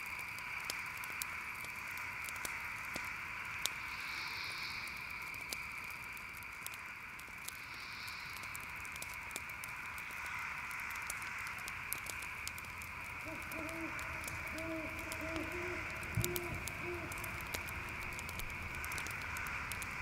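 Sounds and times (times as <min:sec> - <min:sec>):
campfire crackling: 0:00.0 - 0:20.0
crickets chirping: 0:00.0 - 0:20.0
owl hooting: 0:13.2 - 0:19.8.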